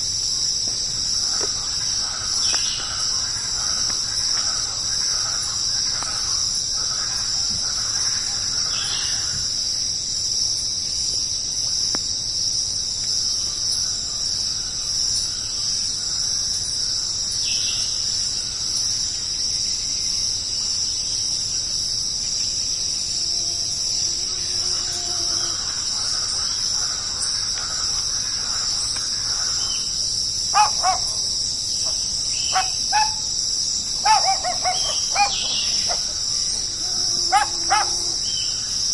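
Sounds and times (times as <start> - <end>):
high-pitched insect chorus: 0.0 - 38.9
short high calls: 34.0 - 38.2.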